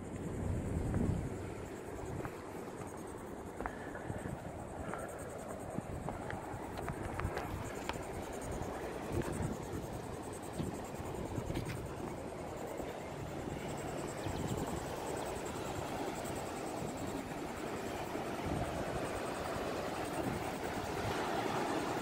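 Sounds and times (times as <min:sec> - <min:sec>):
wind on microphone: 0:00.0 - 0:03.0, 0:03.6 - 0:22.0.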